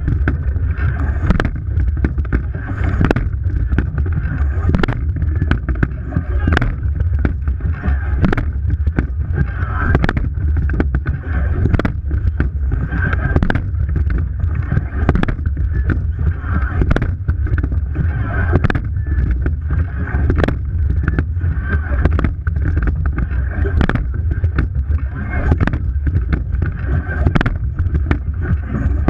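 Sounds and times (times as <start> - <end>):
heavy wind on microphone: 0.0 - 29.0
water rushing along boat hull: 0.0 - 29.0
sharp knocks: 1.2 - 4.1, 8.2 - 9.2, 9.9 - 12.6, 16.8 - 17.8.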